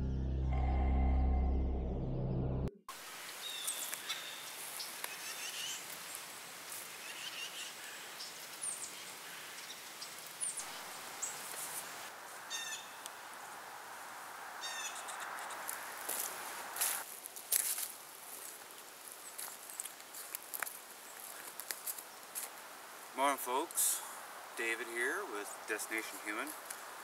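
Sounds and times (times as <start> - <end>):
intro music: 0.0 - 2.8
background hiss: 2.9 - 27.0.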